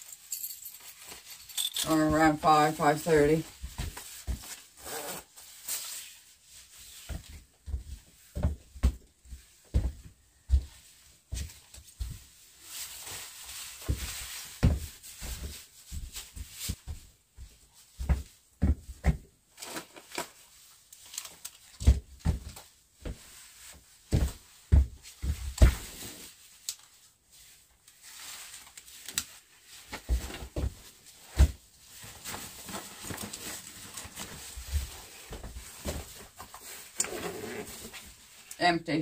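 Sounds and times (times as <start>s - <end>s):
nylon jacket rustling: 3.6s - 7.1s, 25.8s - 38.4s.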